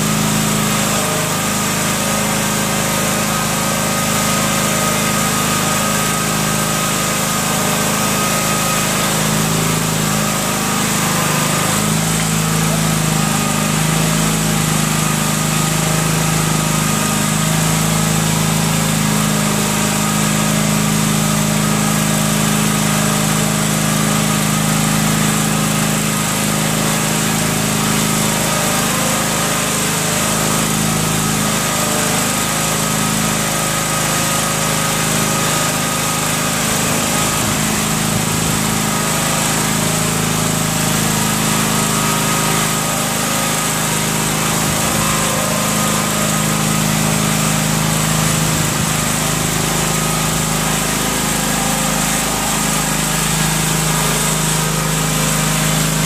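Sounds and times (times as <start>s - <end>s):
small tug engine running: 0.0s - 56.0s.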